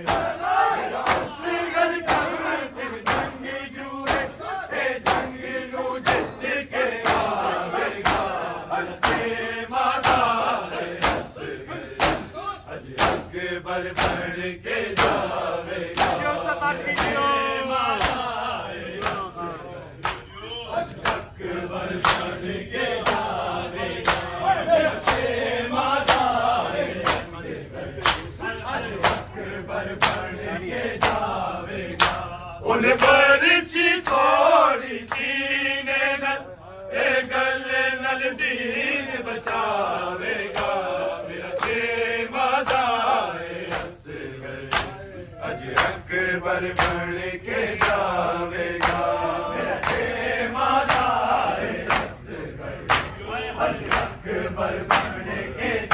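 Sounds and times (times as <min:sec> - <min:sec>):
hands slapping chests: 0:00.0 - 0:01.4, 0:02.0 - 0:02.4, 0:03.0 - 0:03.4, 0:04.0 - 0:04.4, 0:05.0 - 0:05.4, 0:06.0 - 0:06.4, 0:07.0 - 0:08.4, 0:09.0 - 0:09.3, 0:10.0 - 0:10.4, 0:11.0 - 0:11.4, 0:12.0 - 0:13.3, 0:13.9 - 0:14.3, 0:14.9 - 0:15.4, 0:16.0 - 0:17.3, 0:17.9 - 0:18.3, 0:19.0 - 0:19.3, 0:20.0 - 0:20.3, 0:22.0 - 0:22.3, 0:24.0 - 0:24.4, 0:25.0 - 0:25.3, 0:26.0 - 0:26.4, 0:27.0 - 0:27.3, 0:28.0 - 0:28.4, 0:29.9 - 0:30.3, 0:31.0 - 0:32.3, 0:40.5 - 0:40.8, 0:42.6 - 0:42.9, 0:43.6 - 0:44.0, 0:44.7 - 0:45.0, 0:46.8 - 0:47.0, 0:47.8 - 0:48.1, 0:48.8 - 0:49.1, 0:49.7 - 0:50.1, 0:50.8 - 0:51.2, 0:51.8 - 0:52.2, 0:52.9 - 0:53.2
lead voice singing: 0:00.0 - 0:55.9
men chanting in unison: 0:00.0 - 0:55.9.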